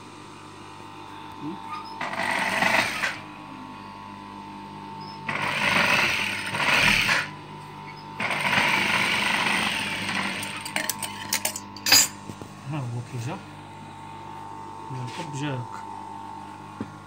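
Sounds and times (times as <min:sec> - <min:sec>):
sewing machine stitching: 0:02.0 - 0:03.2, 0:05.3 - 0:07.3, 0:08.2 - 0:10.9.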